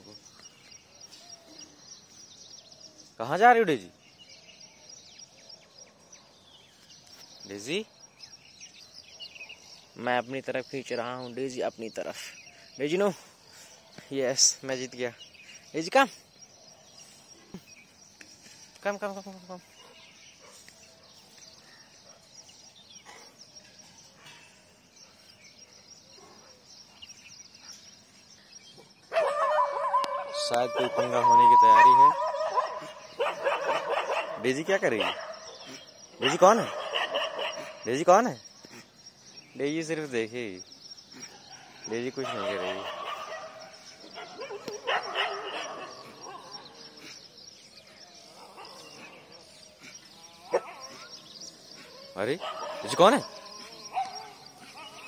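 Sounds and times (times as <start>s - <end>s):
scattered bird chirps: 0.0s - 55.0s
dogs howling and barking: 29.1s - 37.9s, 41.5s - 47.0s, 48.2s - 55.0s.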